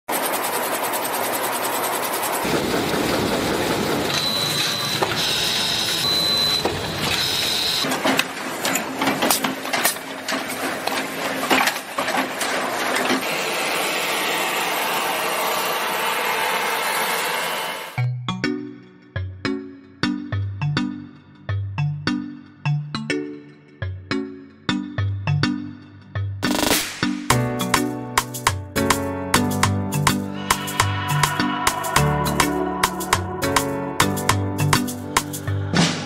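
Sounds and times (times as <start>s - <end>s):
industrial sewing machines: 0.0s - 18.0s
weaving loom clatter: 0.1s - 17.4s.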